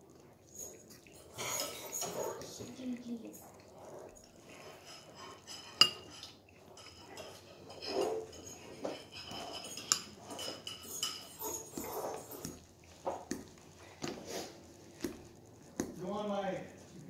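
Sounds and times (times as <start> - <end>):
metal utensil scraping ceramic bowl: 0.6 - 2.8, 4.1 - 13.2.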